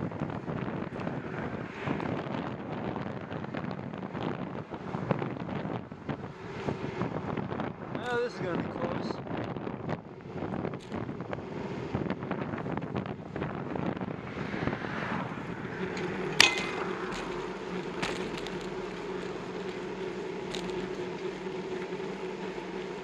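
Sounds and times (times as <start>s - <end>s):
wind buffeting microphone: 0.0s - 23.0s
steady hum: 3.6s - 23.0s
bike and mount rattling: 15.7s - 23.0s
sharp clack of bike jolting: 15.8s - 17.4s, 18.0s - 19.3s.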